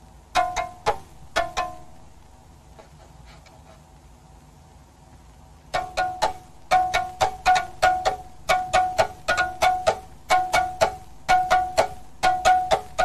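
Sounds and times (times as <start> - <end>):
plucked string notes: 0.3 - 2.3, 5.7 - 13.0.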